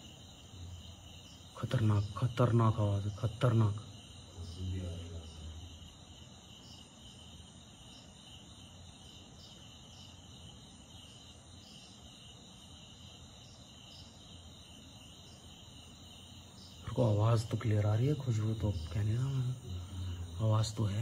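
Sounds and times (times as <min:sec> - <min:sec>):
crickets and insects chirping: 0:00.0 - 0:21.0
faint low hum: 0:00.0 - 0:21.0.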